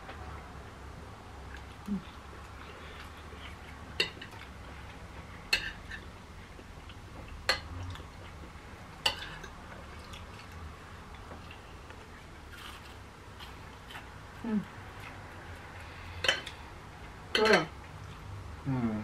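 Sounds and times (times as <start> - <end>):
low steady hum: 0.0 - 19.0
cutlery clinking on plates: 9.1 - 9.6, 16.2 - 16.6, 17.3 - 17.7.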